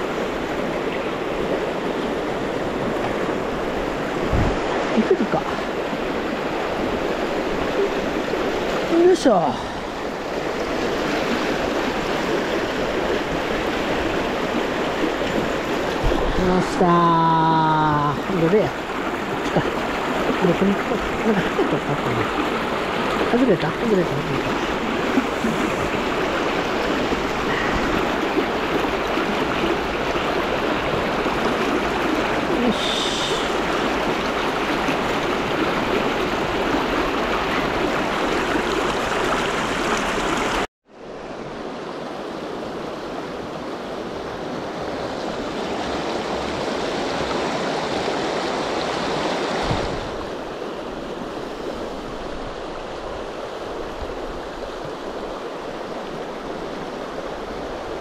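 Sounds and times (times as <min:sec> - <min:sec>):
river rapids rushing: 0:00.0 - 0:40.7.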